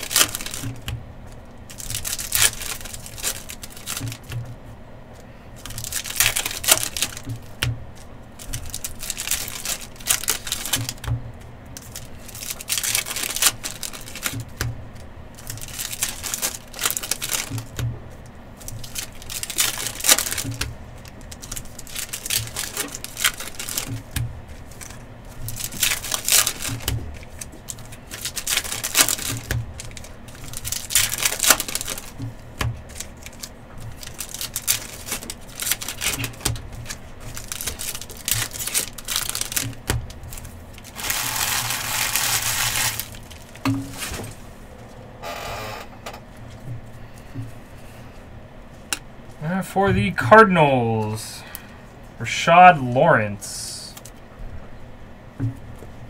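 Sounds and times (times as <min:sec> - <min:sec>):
wrappers crinkling and tearing: 0:00.0 - 0:04.5, 0:05.6 - 0:11.1, 0:11.7 - 0:45.0, 0:53.9 - 0:54.3.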